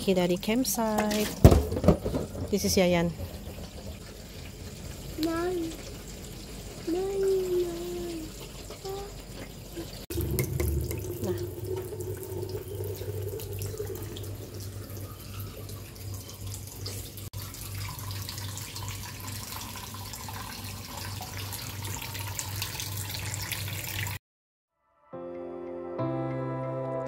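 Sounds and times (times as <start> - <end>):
water running from a tap: 2.3 - 24.2
low pulsing hum: 10.1 - 15.4
gentle music: 24.8 - 27.0.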